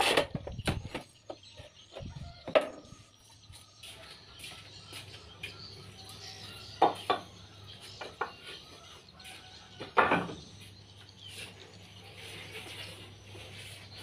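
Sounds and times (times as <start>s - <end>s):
garden waste knocks and thuds: 9.9s - 10.4s.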